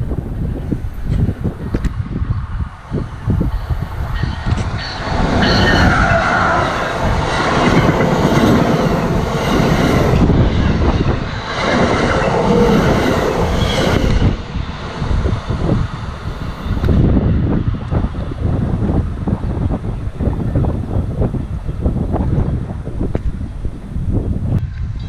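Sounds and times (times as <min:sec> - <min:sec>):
passenger train passing at speed: 0:00.0 - 0:25.0.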